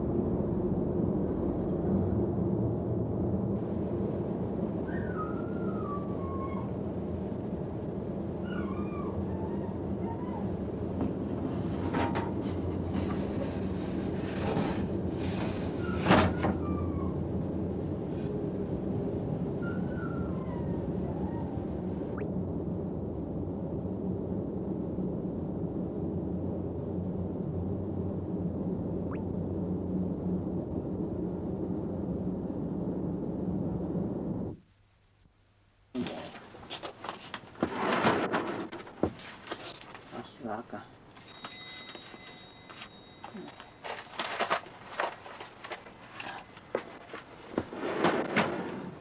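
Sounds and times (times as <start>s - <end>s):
low hum: 0.0s - 37.2s
even rumble: 0.0s - 40.4s, 43.4s - 49.0s
rustling: 36.0s - 40.4s, 41.1s - 49.0s.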